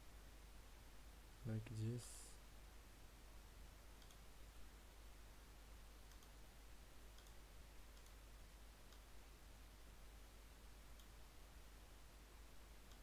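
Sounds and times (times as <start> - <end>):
steady background hum: 0.0 - 13.0
faint computer mouse clicks: 4.0 - 4.2, 6.0 - 6.4, 7.1 - 8.2, 8.9 - 9.1, 10.9 - 11.2.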